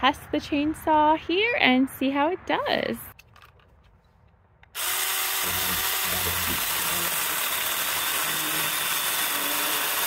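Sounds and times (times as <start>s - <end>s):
electric chainsaw cutting wood: 4.8s - 10.0s.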